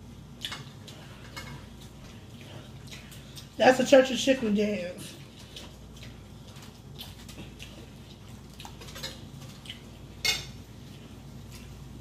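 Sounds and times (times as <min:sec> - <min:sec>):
cutlery scraping dishes: 0:10.2 - 0:10.6.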